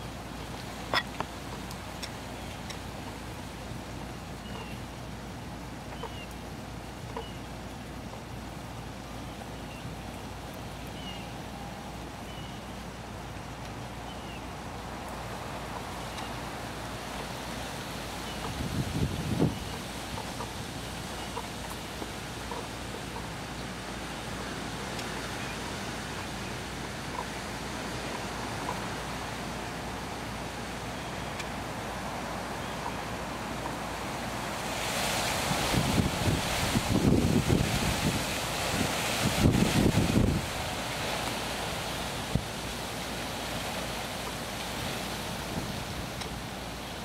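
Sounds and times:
outdoor background noise: 0:00.0 - 0:47.0
wind gusts hitting microphone: 0:18.3 - 0:21.1, 0:33.7 - 0:42.8.

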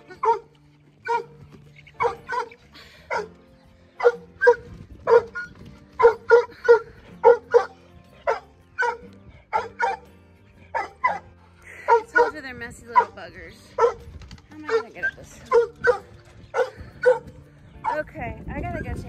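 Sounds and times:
dog barking: 0:00.1 - 0:01.3, 0:02.0 - 0:02.5, 0:03.1 - 0:03.3, 0:04.0 - 0:10.1, 0:10.7 - 0:11.3, 0:11.9 - 0:12.4, 0:13.0 - 0:13.2, 0:13.8 - 0:14.0, 0:14.7 - 0:18.0.

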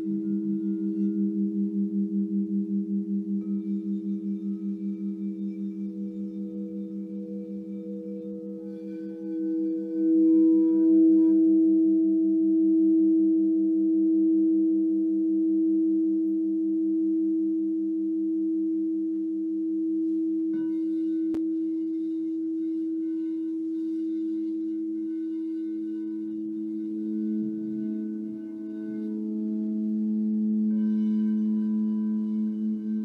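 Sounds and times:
crystal singing bowls ringing: 0:00.0 - 0:12.7, 0:20.4 - 0:33.0.

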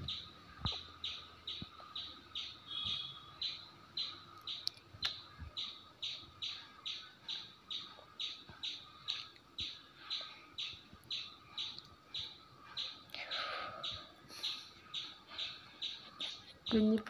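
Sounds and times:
songbird whistled call: 0:02.4 - 0:04.1.

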